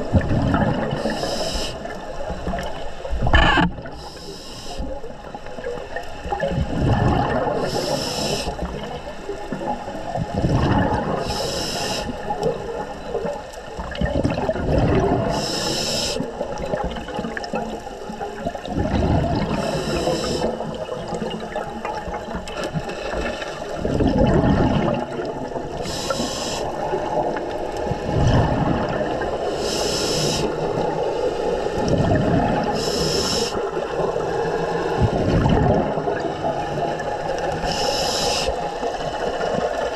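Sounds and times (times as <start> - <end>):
exhaled bubbles underwater: 0.0 - 39.9
regulator inhalation hiss: 1.0 - 2.0, 4.0 - 5.0, 7.6 - 8.6, 11.2 - 12.3, 15.3 - 16.3, 19.5 - 20.6, 25.8 - 26.8, 29.5 - 30.7, 32.7 - 33.6, 37.6 - 38.6.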